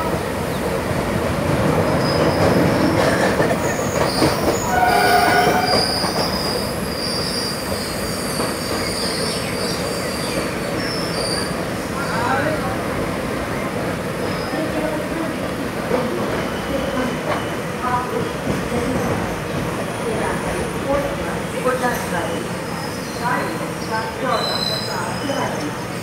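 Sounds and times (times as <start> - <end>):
train wheels rumbling on rails: 0.0 - 26.0
high wheel squeal: 3.7 - 11.6, 24.2 - 25.7.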